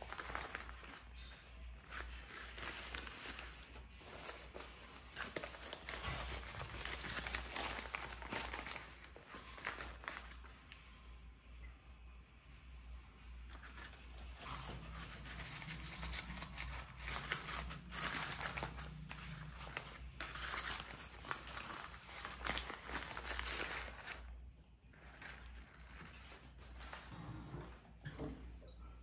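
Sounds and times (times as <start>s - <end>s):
packing paper rustling and crinkling: 0.0s - 10.7s, 13.5s - 27.2s.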